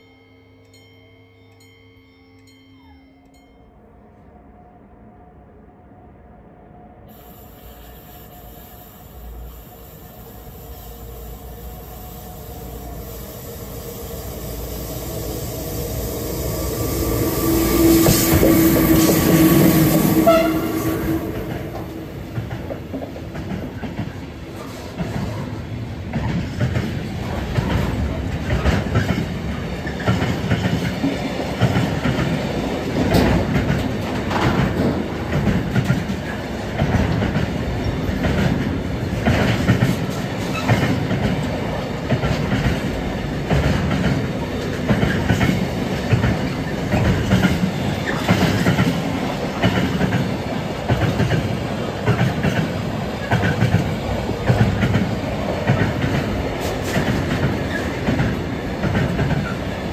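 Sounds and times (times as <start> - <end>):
freight train passing: 0.0 - 59.9
wheels clacking on rail joints: 18.0 - 59.9.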